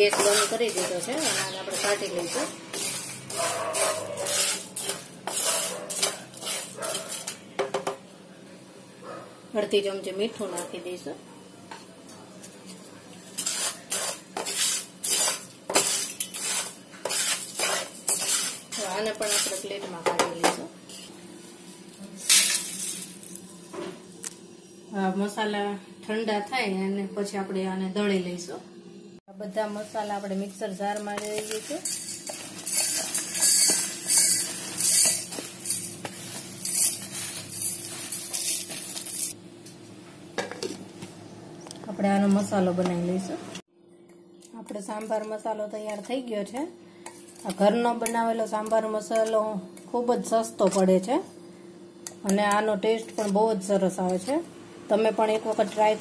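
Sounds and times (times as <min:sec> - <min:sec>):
spatula stirring dry spices in pan: 0:00.0 - 0:07.4, 0:13.3 - 0:19.9, 0:29.6 - 0:39.3
spices rattling into steel jar: 0:31.1 - 0:39.4.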